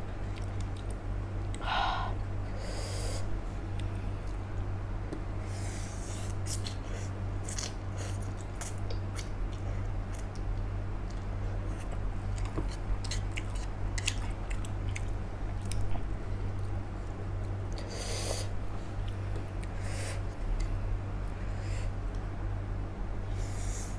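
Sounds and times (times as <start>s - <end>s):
steady low hum: 0.0s - 23.9s
wet smacking and chewing: 11.9s - 16.8s.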